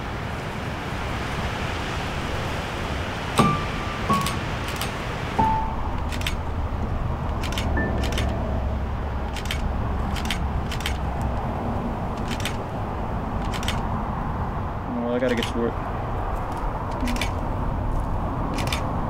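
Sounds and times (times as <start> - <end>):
camera shutter clicks: 7.3 - 8.4, 9.3 - 11.0, 13.4 - 13.8, 17.0 - 17.4, 18.6 - 18.9.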